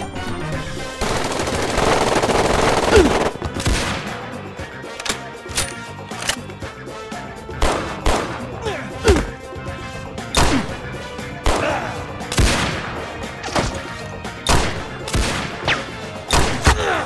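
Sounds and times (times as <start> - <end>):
background music: 0.0 - 17.0
gunshots: 0.9 - 4.4, 7.5 - 8.5, 10.4 - 10.8, 11.4 - 16.9.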